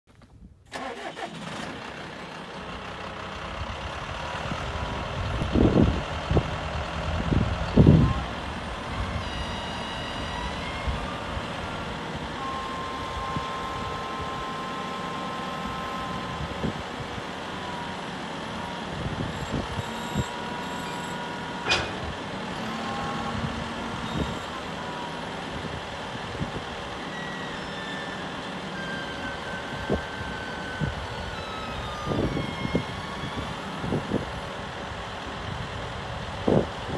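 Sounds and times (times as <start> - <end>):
tractor diesel engine running: 0.7 - 36.9
short beeps: 8.1 - 11.5, 18.6 - 22.1
held tone: 19.4 - 22.2.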